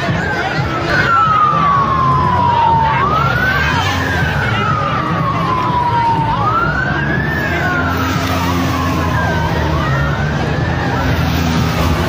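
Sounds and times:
emergency siren wailing: 0.0 - 12.0.

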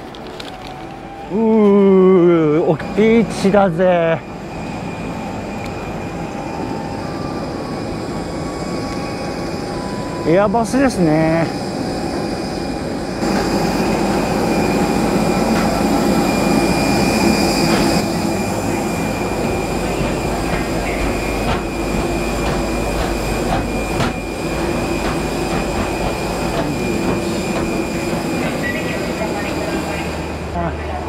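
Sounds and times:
jet aircraft whine and rumble: 0.0 - 31.0
footsteps on metal stairs: 13.2 - 16.4, 17.5 - 18.1, 18.8 - 29.6.

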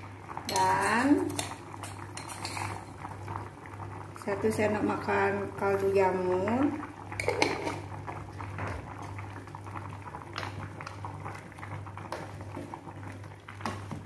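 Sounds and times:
soup bubbling at the boil: 0.0 - 14.0
metal ladle stirring: 1.3 - 2.9.

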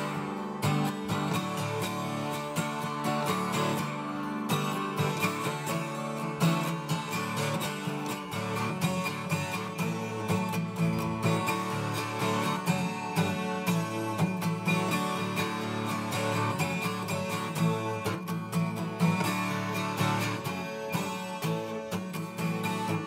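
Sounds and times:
twelve-string acoustic guitar strumming: 0.0 - 23.0.

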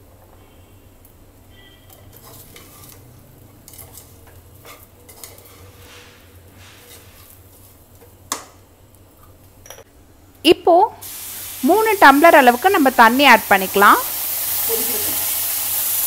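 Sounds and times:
spoon scraping in pot: 1.7 - 8.1.

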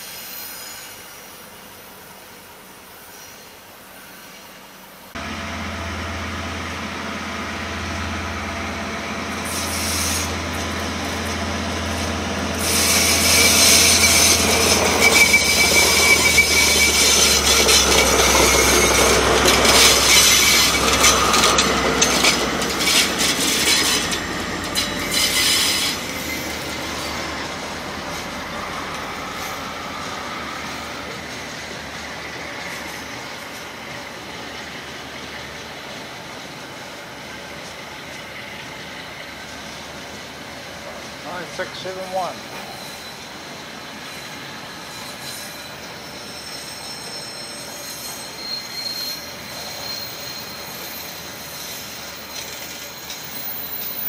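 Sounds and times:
diesel locomotive engine rumble: 0.0 - 54.0
freight wagons rolling: 5.2 - 33.6, 51.8 - 54.0
rail clicks: 5.2 - 54.0
wheel squeal: 8.6 - 34.8, 41.3 - 54.0.

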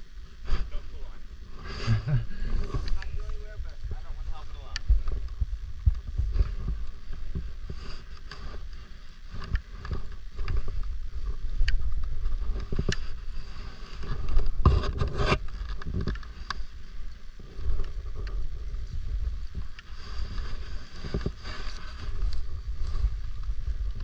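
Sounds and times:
wind rumbling on microphone: 0.0 - 24.0
scrapes and clicks: 1.6 - 3.9, 4.6 - 24.0
rubbing noise: 12.2 - 15.6.

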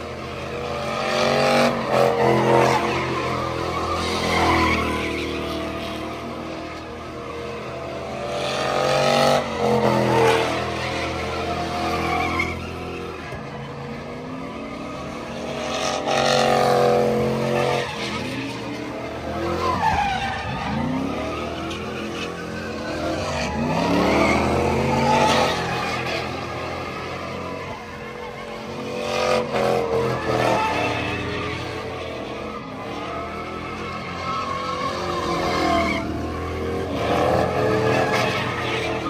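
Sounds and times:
truck engine revving hard: 19.2 - 27.0.

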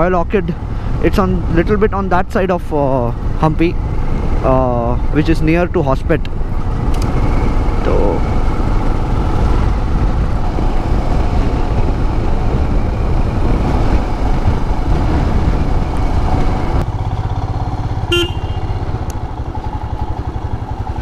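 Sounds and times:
road and wind noise: 0.0 - 21.0
motorcycle engine running: 6.3 - 21.0
short horn toot: 18.0 - 18.8.

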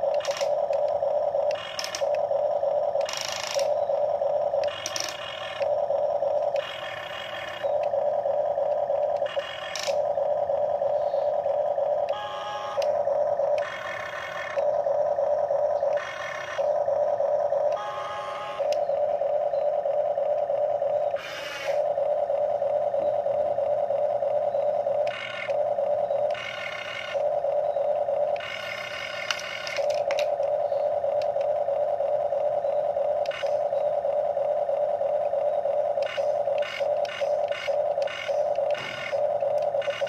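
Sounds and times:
toy excavator motors whining: 0.0 - 40.0
gearbox grinding: 36.0 - 40.0.

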